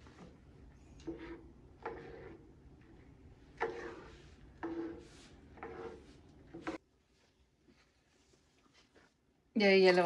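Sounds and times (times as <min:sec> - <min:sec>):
ladle scraping a pot: 0:01.0 - 0:06.8.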